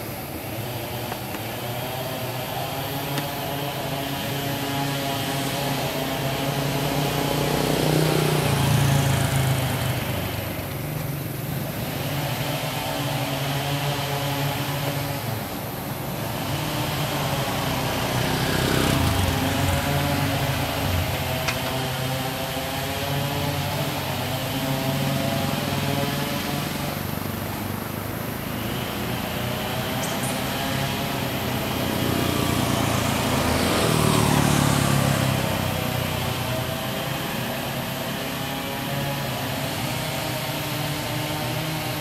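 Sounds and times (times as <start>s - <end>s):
motorbikes passing: 0.0s - 42.0s
van passing: 16.9s - 22.6s.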